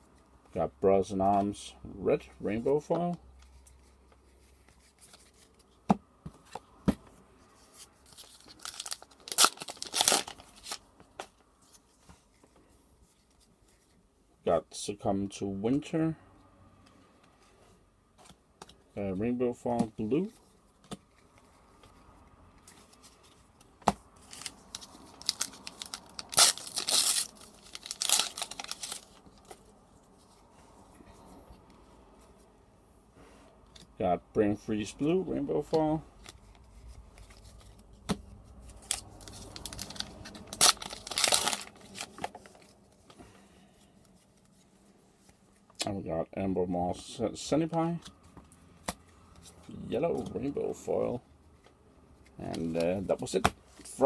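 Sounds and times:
foil wrapper tearing and crinkling: 0:08.1 - 0:10.8, 0:24.3 - 0:29.2, 0:38.8 - 0:42.3.

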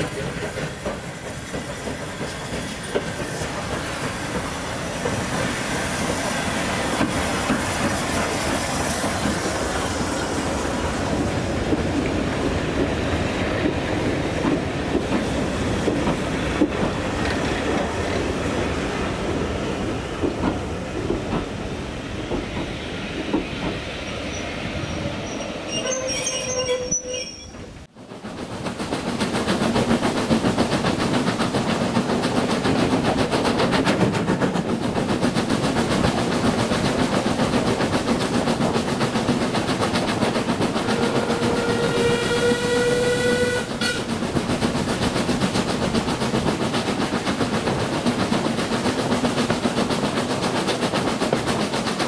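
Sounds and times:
train rumble and rail clatter: 0:00.0 - 0:52.0
steam locomotive whistle: 0:40.8 - 0:44.1.

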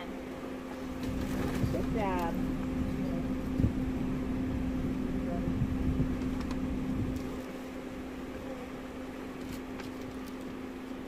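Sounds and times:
car engine idling inside cabin: 0:00.0 - 0:11.0
constant tone: 0:00.0 - 0:11.0
low rumble: 0:00.8 - 0:09.0.

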